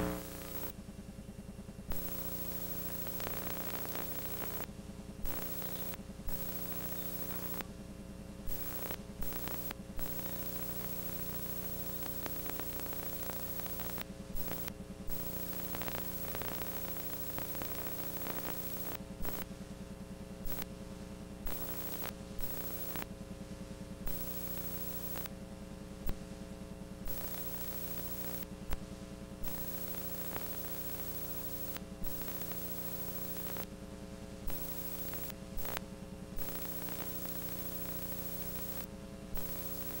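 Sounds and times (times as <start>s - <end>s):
static hiss: 0.0s - 0.7s, 1.9s - 7.6s, 8.5s - 19.4s, 20.4s - 20.7s, 21.5s - 23.1s, 24.1s - 25.3s, 27.1s - 28.8s, 29.4s - 33.7s, 34.5s - 35.8s, 36.4s - 40.0s
electrical hum: 0.0s - 0.8s, 1.7s - 40.0s.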